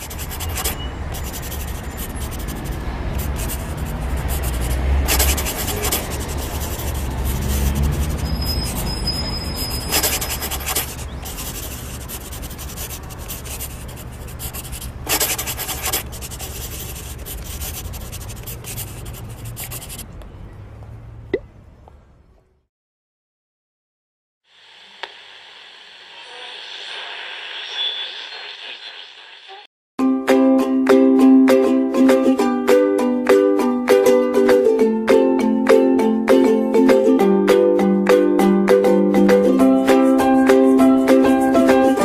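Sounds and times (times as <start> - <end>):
marker pen scratching on paper: 0.0 - 20.0, 39.9 - 42.0.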